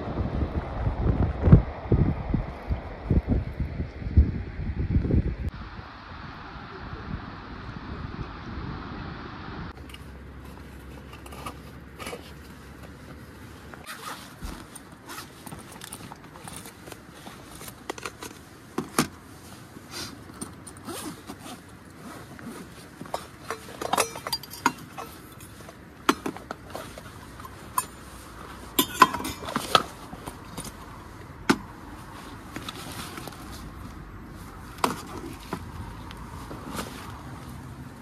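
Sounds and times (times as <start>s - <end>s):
cups and pots clinking on table: 28.8s - 29.7s.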